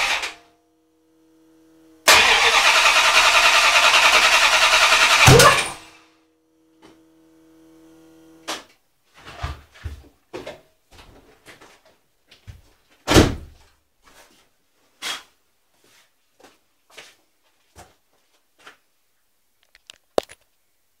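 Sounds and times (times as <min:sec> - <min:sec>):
engine backfiring pops: 0:04.9 - 0:05.9.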